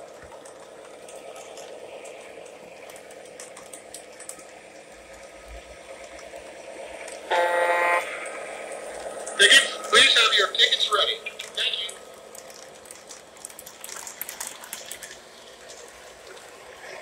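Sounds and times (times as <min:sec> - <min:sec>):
model train motor whir: 0:05.2 - 0:10.0
train horn blast: 0:07.2 - 0:08.2.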